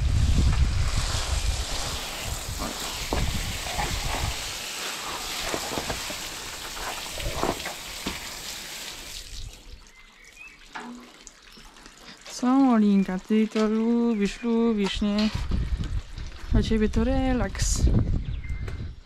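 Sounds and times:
hose water spraying on bricks: 0.0s - 12.6s.

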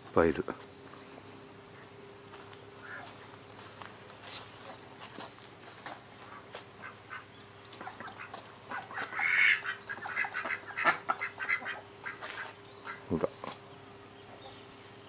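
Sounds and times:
ducks quacking: 6.2s - 13.6s.

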